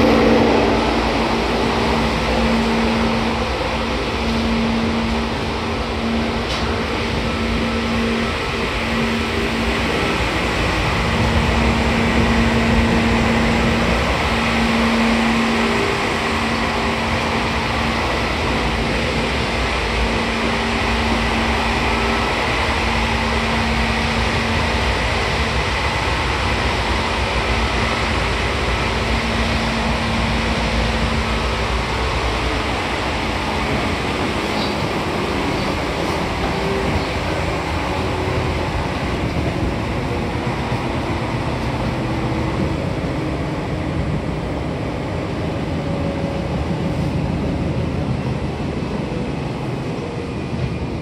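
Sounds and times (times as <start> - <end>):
train wheels rumbling on rails: 0.0 - 51.0.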